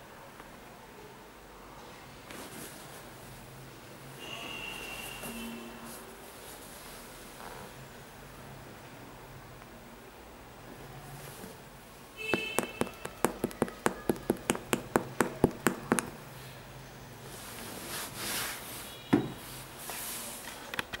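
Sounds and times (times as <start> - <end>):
shoe rustling: 12.2 - 16.2
finger tapping on shoe sole: 12.3 - 16.2
knock: 12.3 - 16.2.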